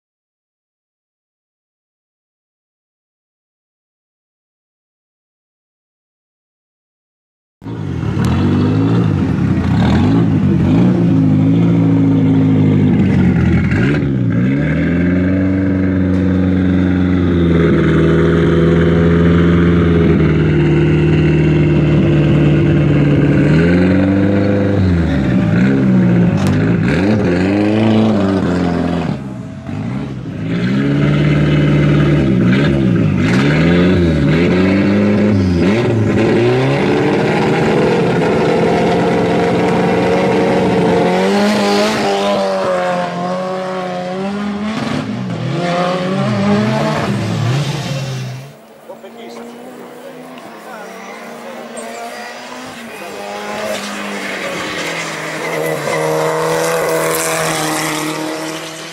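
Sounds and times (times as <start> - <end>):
race car engine revving: 7.6 - 58.9.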